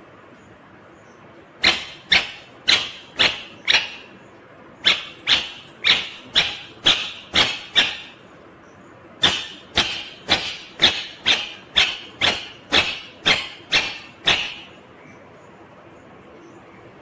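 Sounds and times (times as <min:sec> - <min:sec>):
parakeet squawking: 0:01.6 - 0:04.2, 0:04.8 - 0:08.2, 0:09.2 - 0:14.8.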